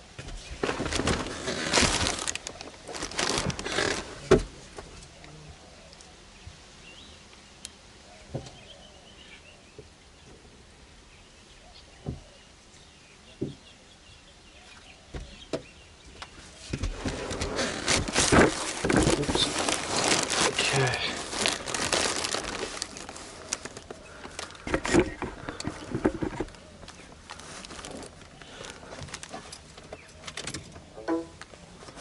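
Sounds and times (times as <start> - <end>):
rustling and handling noises: 0.0 - 5.2, 16.2 - 32.0.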